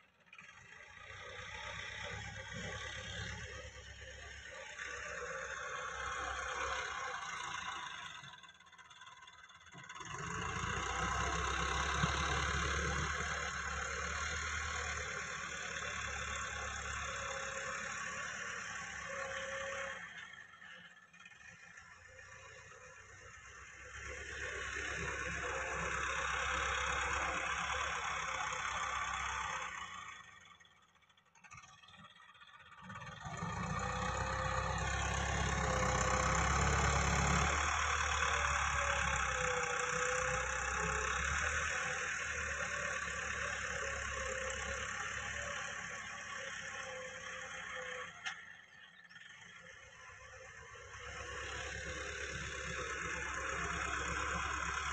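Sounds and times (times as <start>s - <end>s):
tractor diesel engine under load: 0.0s - 54.9s
harrow dragging through soil: 10.0s - 20.6s, 32.8s - 48.0s, 50.7s - 54.9s.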